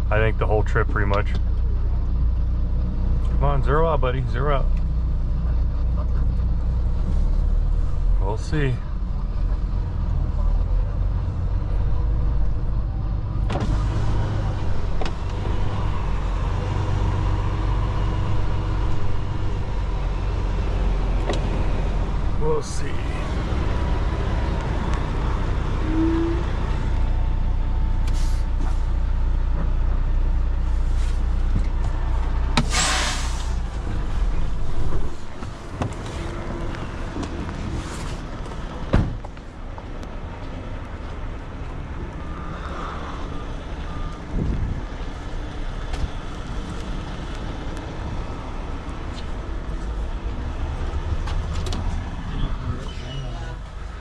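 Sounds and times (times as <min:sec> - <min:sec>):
diesel truck engine idling: 0:00.0 - 0:54.0
air brake hiss: 0:28.1 - 0:28.4, 0:32.6 - 0:33.6
truck door slamming: 0:38.9 - 0:39.2.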